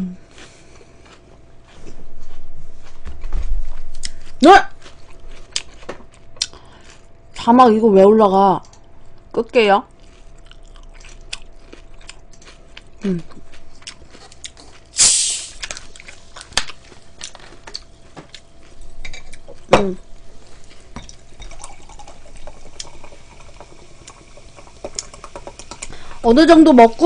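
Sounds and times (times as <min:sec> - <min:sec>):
loud slurp: 0:15.0 - 0:15.6.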